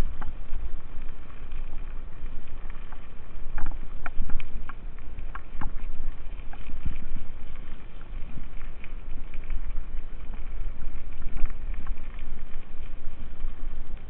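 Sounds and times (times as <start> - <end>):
wind buffeting microphone: 0.0 - 0.7.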